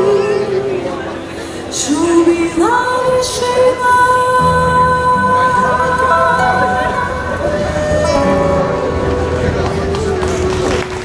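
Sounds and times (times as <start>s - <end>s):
woman singing: 0.0s - 1.0s, 1.7s - 9.0s
acoustic guitar: 0.0s - 11.0s
double bass: 4.4s - 11.0s.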